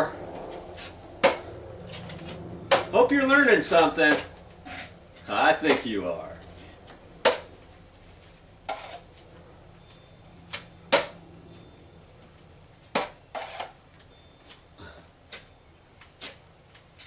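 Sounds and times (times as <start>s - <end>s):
drywall knife scraping and clacking: 4.1s - 5.0s, 8.7s - 9.1s, 13.0s - 13.8s.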